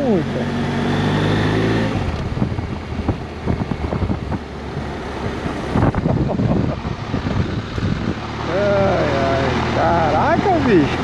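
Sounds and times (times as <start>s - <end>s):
motorcycle engine hum: 0.0s - 11.0s
wind buffeting microphone: 1.9s - 11.0s.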